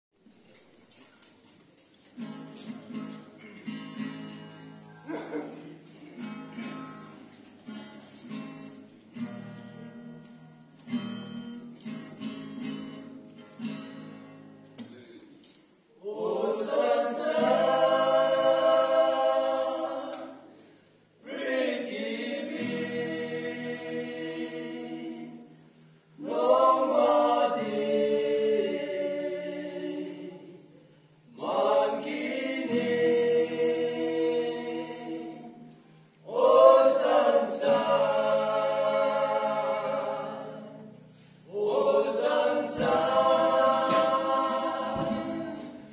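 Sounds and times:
acoustic guitar strumming: 2.2 - 4.9, 6.1 - 14.8, 36.9 - 45.9
men singing together: 16.0 - 20.5, 21.2 - 25.5, 26.2 - 30.6, 31.3 - 35.7, 36.3 - 40.9, 41.5 - 45.9.

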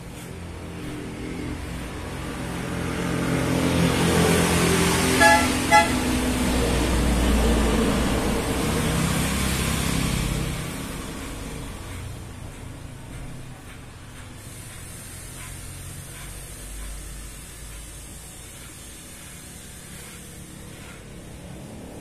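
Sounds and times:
motor vehicle passing by: 0.0 - 22.0
car horn beeps: 5.2 - 6.2.

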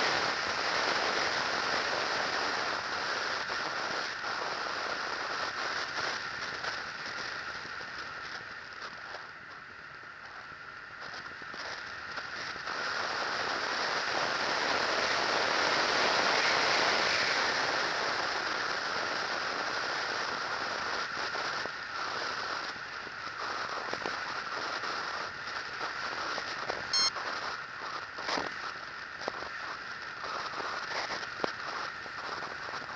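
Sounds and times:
brief high-pitched tone: 26.9 - 27.1.

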